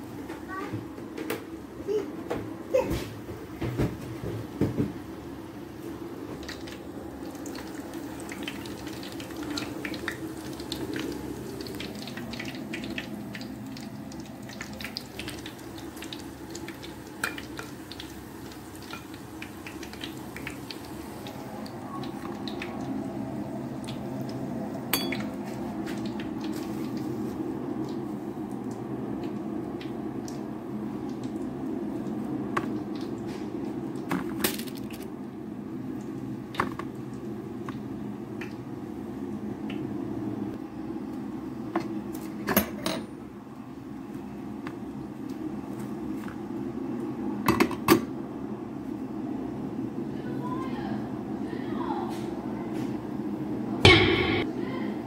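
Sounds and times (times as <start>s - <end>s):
oil crackling with small pops: 6.4s - 22.9s
metal spoon clinking against pot: 25.0s - 25.2s
louder knocks: 53.9s - 54.5s.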